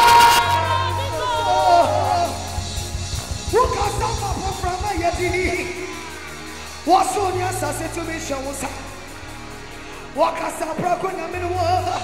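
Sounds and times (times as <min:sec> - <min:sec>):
live band playing: 0:00.0 - 0:06.9.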